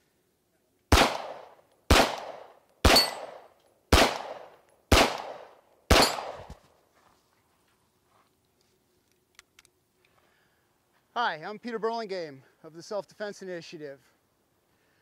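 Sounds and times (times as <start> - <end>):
pistol shots with echo: 0.9 - 6.6.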